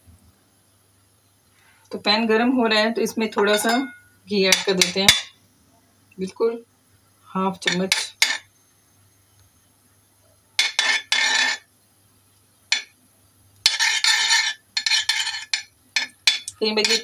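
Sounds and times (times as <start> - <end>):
metal spoon scraping wok: 7.6 - 8.5, 10.6 - 11.7, 13.6 - 17.0.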